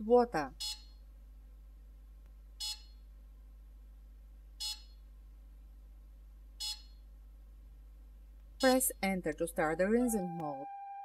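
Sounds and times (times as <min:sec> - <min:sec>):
short electronic beeps: 0:02.6 - 0:03.0, 0:04.6 - 0:05.0, 0:06.6 - 0:07.0, 0:10.0 - 0:11.0.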